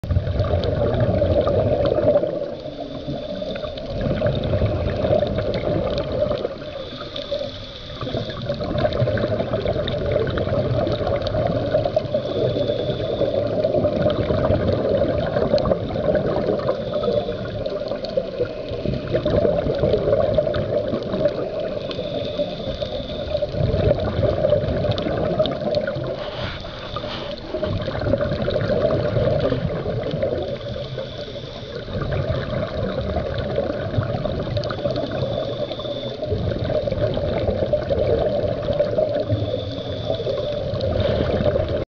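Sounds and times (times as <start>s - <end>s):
underwater regulator bubbles: 0.0s - 41.8s.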